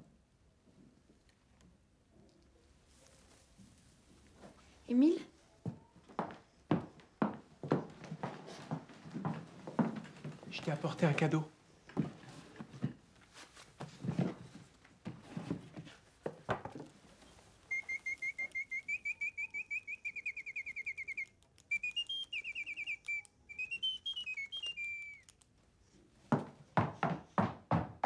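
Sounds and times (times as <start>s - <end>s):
small bird singing: 17.7s - 25.3s.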